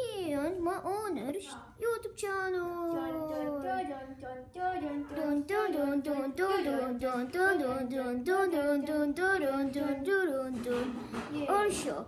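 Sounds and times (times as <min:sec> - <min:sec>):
child singing: 0:02.7 - 0:12.0.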